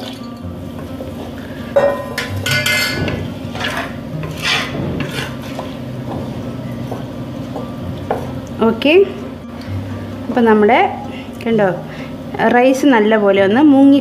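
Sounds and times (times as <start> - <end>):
wooden spatula scraping pot: 2.4 - 6.4.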